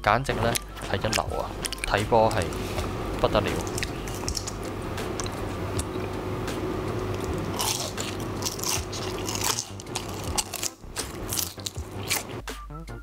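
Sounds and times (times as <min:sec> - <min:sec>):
onion ring crunching: 0:03.5 - 0:05.9, 0:07.0 - 0:12.4.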